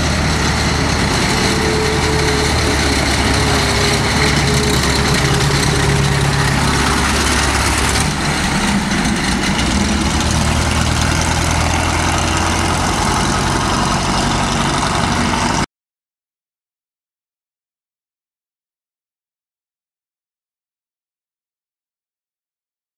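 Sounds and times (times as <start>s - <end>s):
tank engine driving past: 0.0s - 15.7s.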